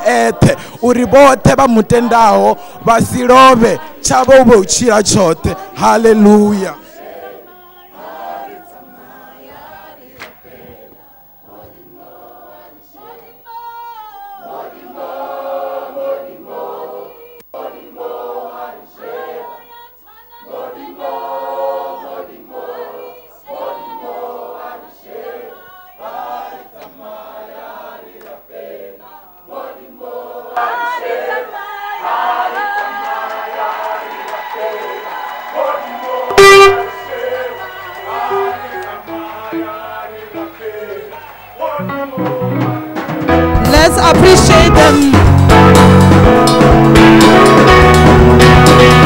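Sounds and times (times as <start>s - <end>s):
choir singing unaccompanied: 0.0s - 49.0s.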